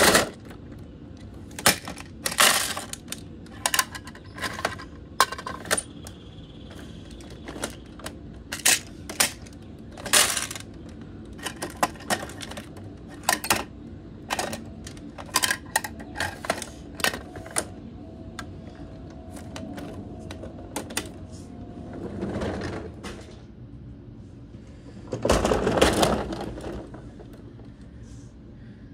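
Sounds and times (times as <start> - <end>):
toy bins set down on wood: 1.5 - 6.1, 6.7 - 10.8
plastic toy clicks and clacks: 1.6 - 17.7.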